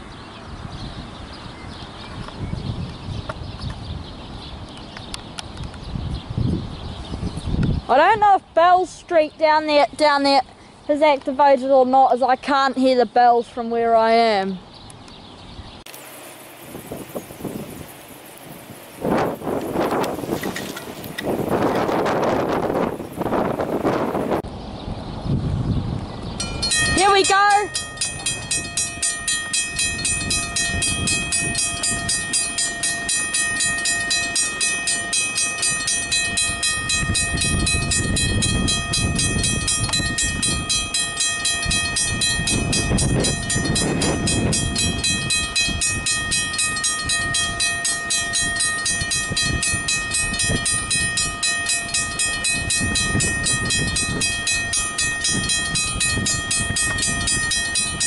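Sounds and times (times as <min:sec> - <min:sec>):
level crossing bells ringing: 0:26.4 - 0:58.0.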